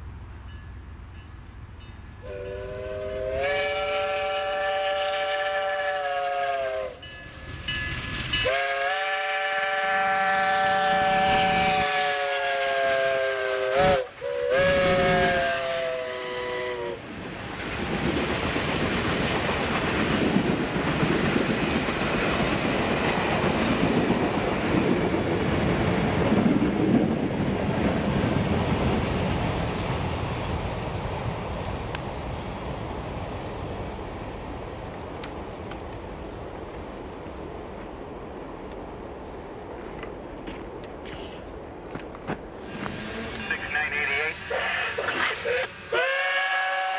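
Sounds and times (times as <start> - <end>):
steam whistle: 2.2 - 7.1, 8.4 - 17.0, 42.8 - 46.9
train wheels clicking and rumbling: 6.8 - 13.1, 16.4 - 43.6.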